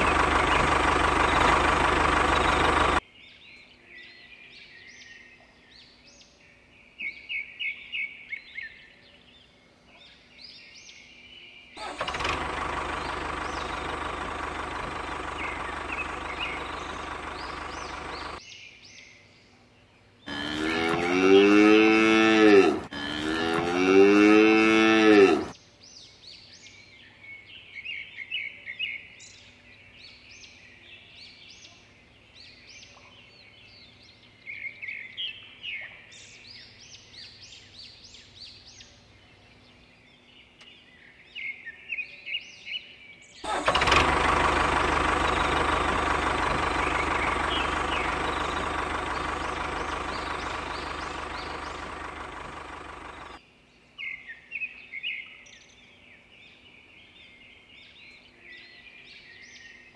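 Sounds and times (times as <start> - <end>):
loud mechanical running sound: 0.0 - 3.0, 11.8 - 18.4, 43.5 - 53.4
small birds chirping: 0.0 - 21.8, 22.4 - 59.9.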